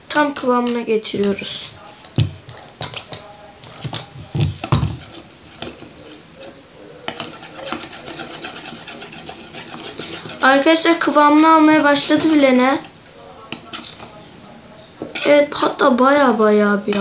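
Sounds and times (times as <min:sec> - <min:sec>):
spoon stirring slime: 0:00.1 - 0:17.0
dull thumps: 0:02.1 - 0:05.2.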